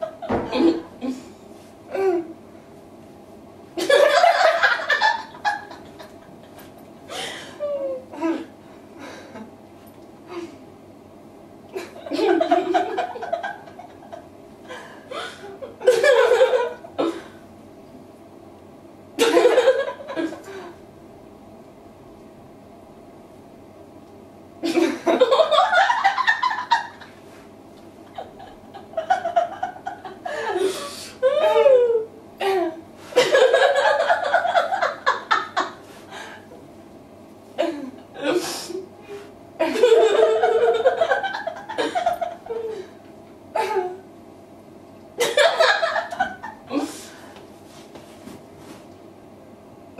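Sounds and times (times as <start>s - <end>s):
women laughing: 3.8s - 8.1s, 11.8s - 14.3s, 15.1s - 16.9s, 19.2s - 20.7s, 24.6s - 27.1s, 28.1s - 32.1s, 33.2s - 35.8s, 39.6s - 42.9s, 45.2s - 46.9s.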